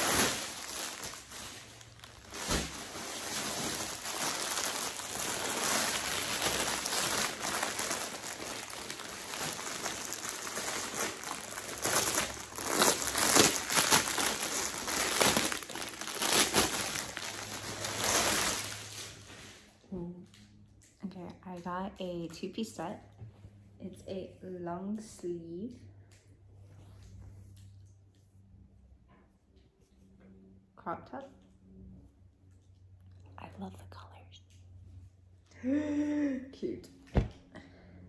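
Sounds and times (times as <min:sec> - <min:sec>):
plastic packaging crinkling: 0:00.0 - 0:19.6.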